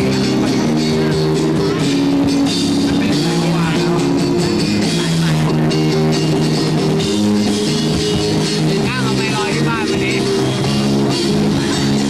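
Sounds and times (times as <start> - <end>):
drum kit: 0.0 - 12.0
electric guitars: 0.0 - 12.0.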